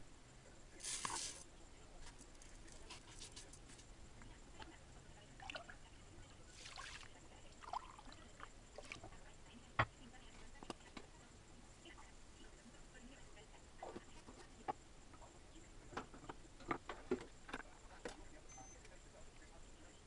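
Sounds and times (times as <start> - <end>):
rice grains poured in a pot: 0.8 - 1.4.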